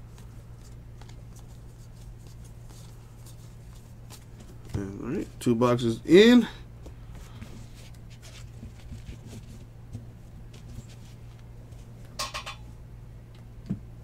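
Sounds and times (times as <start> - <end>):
trading cards being handled: 0.0 - 5.5, 6.8 - 11.5
steady low hum: 0.0 - 14.0.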